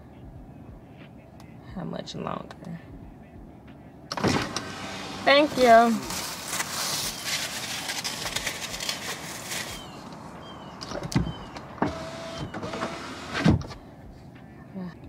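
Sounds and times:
car power window running: 0:04.1 - 0:06.6, 0:09.9 - 0:13.8.

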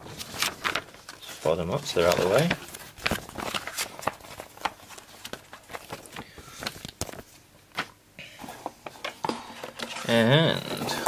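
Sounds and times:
paper taps clicks and rustles: 0:02.0 - 0:07.9.

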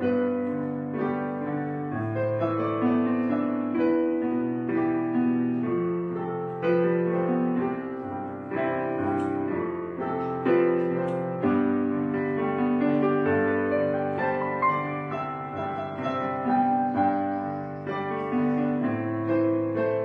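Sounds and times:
background piano music: 0:00.0 - 0:20.0.

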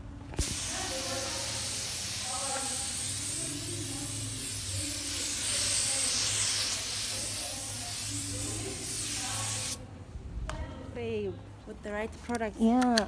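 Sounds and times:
rushing air hiss: 0:00.4 - 0:09.8.

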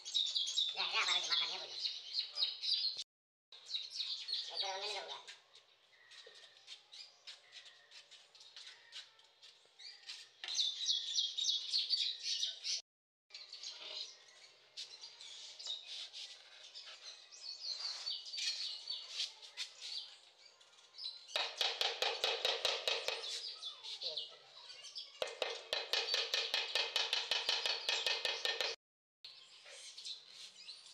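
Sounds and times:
birds chirping: 0:00.0 - 0:03.0, 0:09.9 - 0:30.9
trowel tapping tiles: 0:25.2 - 0:28.8.

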